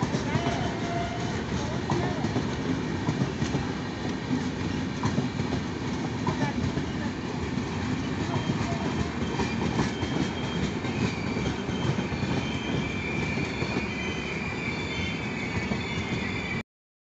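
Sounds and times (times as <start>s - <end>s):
train wheels rumbling on rails: 0.0s - 16.6s
high wheel squeal: 8.0s - 16.6s.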